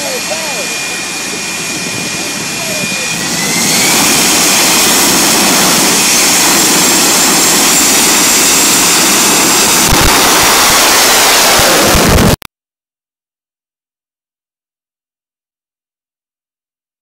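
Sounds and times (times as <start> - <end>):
jet engine whining: 0.0 - 12.4.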